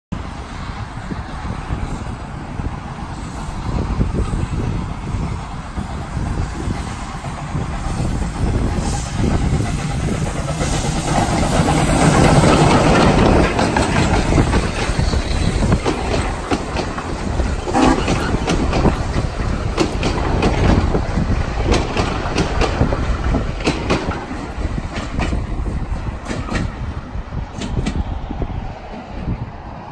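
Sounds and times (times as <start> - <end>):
steam locomotive passing: 0.2 - 29.9
carriage wheels clicking over rail joints: 10.4 - 22.9.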